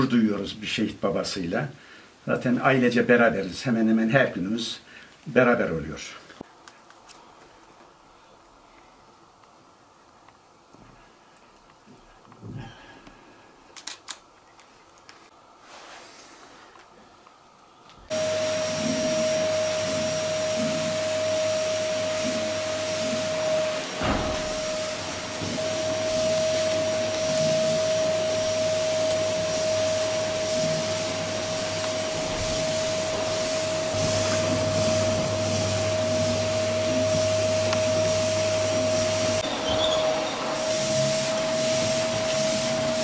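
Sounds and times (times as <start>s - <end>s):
vacuum cleaner running: 18.1s - 43.0s.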